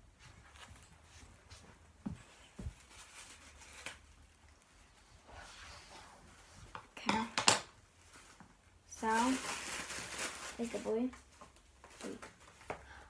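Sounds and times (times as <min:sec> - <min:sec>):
package rustling: 0:08.0 - 0:12.6.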